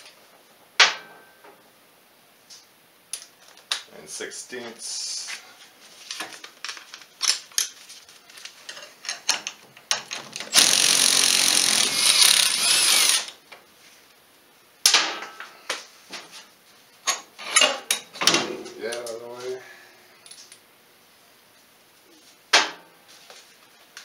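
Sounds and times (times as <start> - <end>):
cordless power tool spinning: 10.5 - 13.3.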